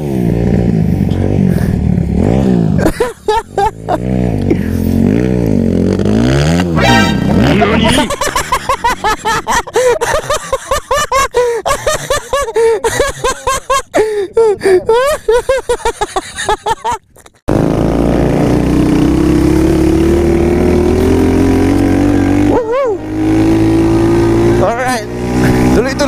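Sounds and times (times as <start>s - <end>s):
dirt bike engine revving: 0.0s - 10.7s, 17.5s - 26.0s.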